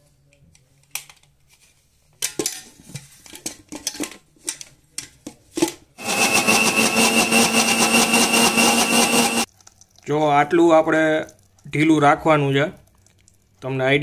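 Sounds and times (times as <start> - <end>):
mixer grinder motor whining: 6.0 - 9.5.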